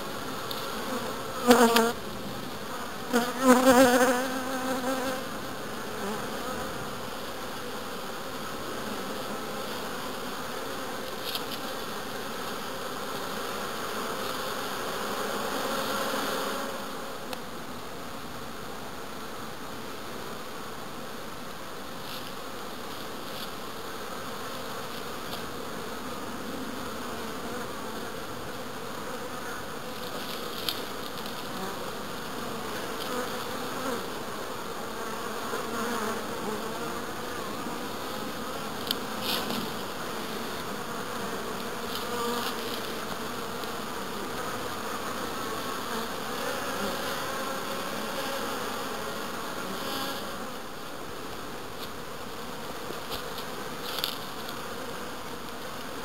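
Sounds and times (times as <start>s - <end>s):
honeybees buzzing: 0.0s - 56.0s.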